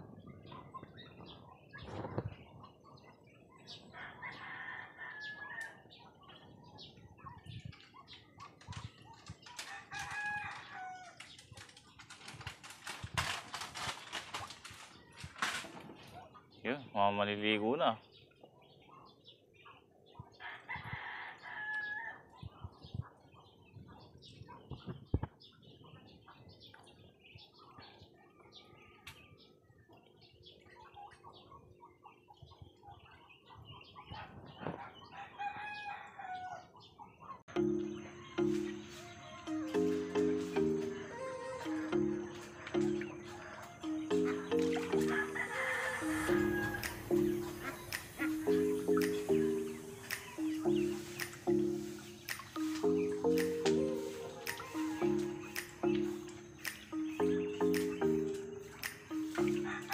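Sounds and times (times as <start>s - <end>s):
rooster crowing: 3.9s - 5.8s, 9.7s - 11.2s, 20.4s - 22.2s, 35.2s - 36.7s, 43.2s - 47.5s, 54.1s - 55.6s, 59.4s - 59.9s
ducks and fowl calling: 30.7s - 59.9s
music: 37.5s - 59.9s.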